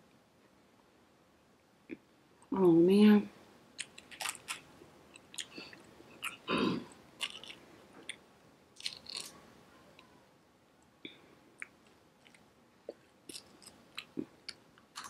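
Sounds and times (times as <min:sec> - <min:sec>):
crab shell cracking: 0:03.8 - 0:05.6, 0:07.2 - 0:07.6, 0:08.8 - 0:09.4.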